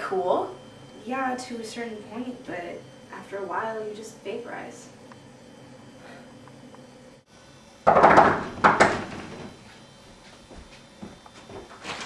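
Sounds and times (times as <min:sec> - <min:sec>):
loud banging on a door: 0:07.9 - 0:09.5.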